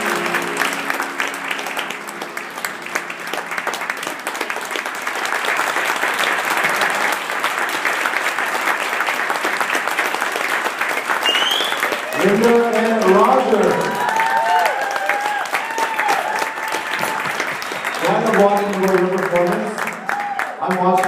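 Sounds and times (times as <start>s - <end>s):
dance music: 0.0s - 3.6s
audience applauding: 0.0s - 21.0s.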